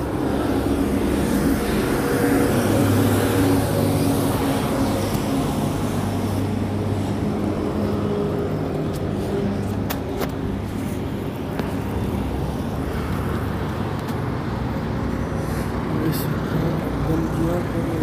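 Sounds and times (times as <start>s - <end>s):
road traffic: 0.0s - 18.0s
vehicle engine humming: 0.0s - 18.0s.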